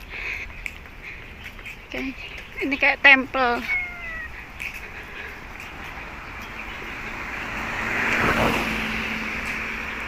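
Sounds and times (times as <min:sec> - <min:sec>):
steady traffic hum: 0:00.0 - 0:10.0
car passing by: 0:05.4 - 0:10.0.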